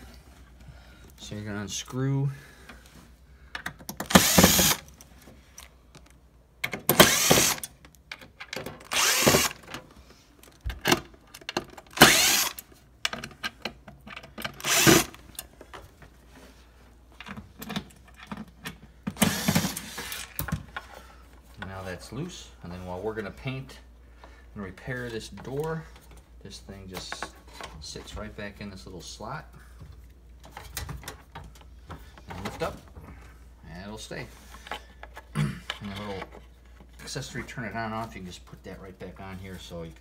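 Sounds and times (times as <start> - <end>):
cordless screw gun backing out screws: 3.9 - 4.9, 6.9 - 7.7, 8.8 - 9.6, 11.9 - 12.6, 14.5 - 15.2, 19.2 - 20.4.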